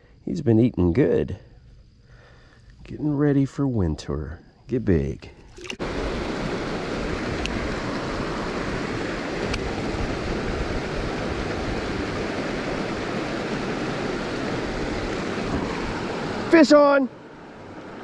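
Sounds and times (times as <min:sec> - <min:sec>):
creek water rushing over rocks: 0:05.5 - 0:18.0.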